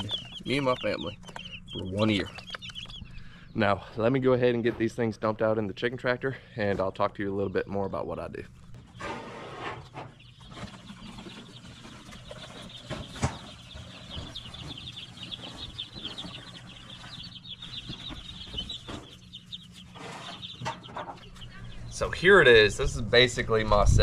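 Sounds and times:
chicks peeping: 0:00.0 - 0:24.0.

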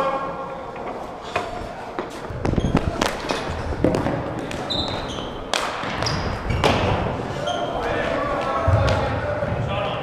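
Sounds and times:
shoe squeaks: 0:02.1 - 0:03.6, 0:04.6 - 0:08.0.

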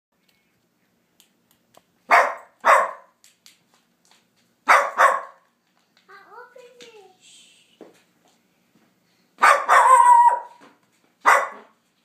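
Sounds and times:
small dog barking: 0:02.1 - 0:03.2, 0:04.7 - 0:05.4, 0:09.4 - 0:10.6, 0:11.2 - 0:11.8.

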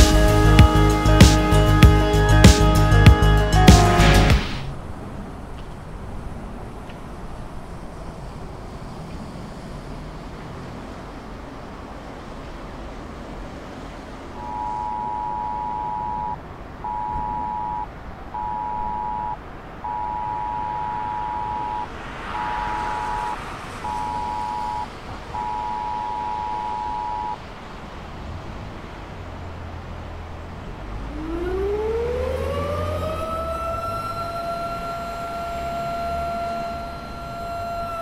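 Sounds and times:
phone emergency alert tone: 0:14.4 - 0:27.4
electric motor siren winding up: 0:31.1 - 0:38.0.

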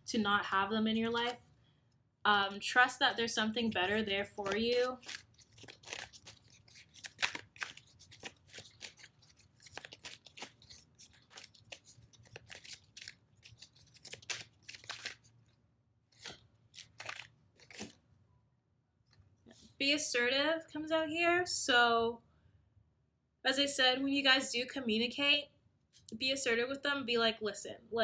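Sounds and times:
cards being shuffled: 0:03.7 - 0:15.5, 0:16.1 - 0:18.0.

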